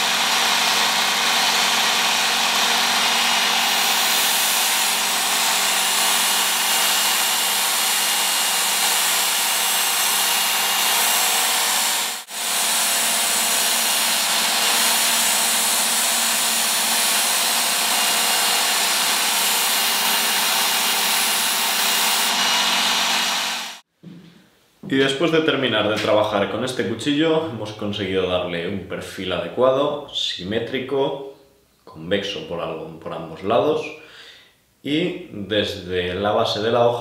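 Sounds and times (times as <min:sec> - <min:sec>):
electric belt sharpener motor humming: 0:00.0 - 0:23.8.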